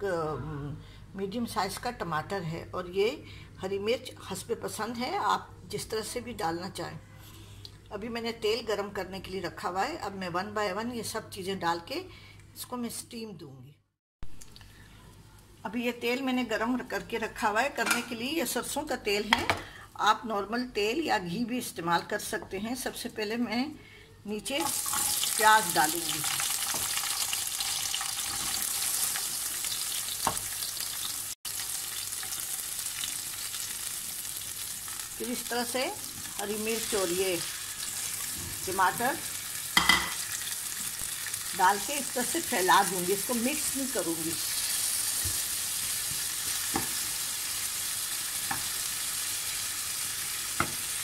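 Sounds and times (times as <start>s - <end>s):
onion sizzling in oil: 24.6s - 51.0s.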